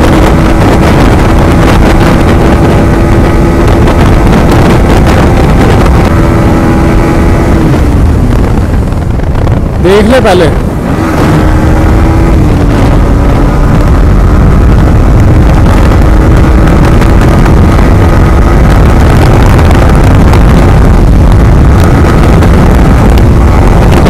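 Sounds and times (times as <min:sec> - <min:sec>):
motorcycle engine cruising: 0:00.0 - 0:24.0
wind noise on microphone: 0:00.0 - 0:24.0
man talking: 0:09.8 - 0:10.6.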